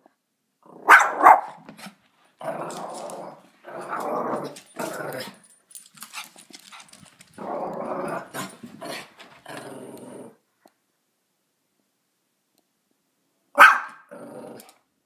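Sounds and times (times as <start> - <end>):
small dog barking: 0.8 - 1.6, 13.6 - 14.1.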